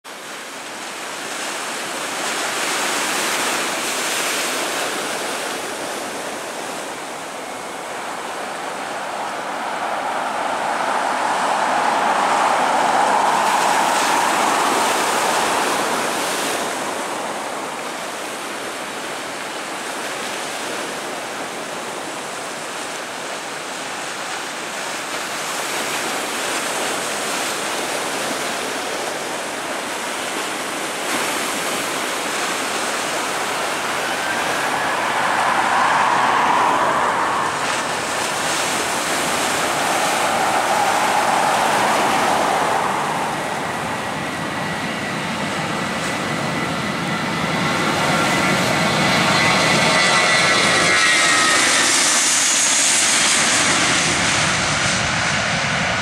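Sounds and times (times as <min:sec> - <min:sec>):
jet engines idling: 0:04.6 - 0:19.8, 0:31.6 - 0:56.0.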